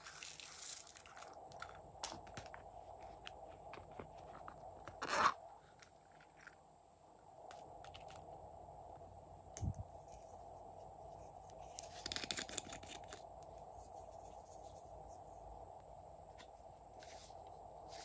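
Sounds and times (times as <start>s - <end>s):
background hum: 0.0s - 18.0s.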